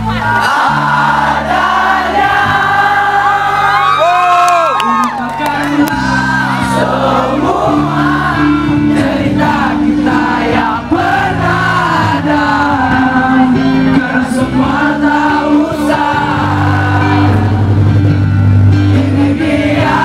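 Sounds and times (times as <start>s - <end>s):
voices singing slow melody together: 0.0s - 4.1s, 5.8s - 20.0s
held low chords: 5.7s - 20.0s.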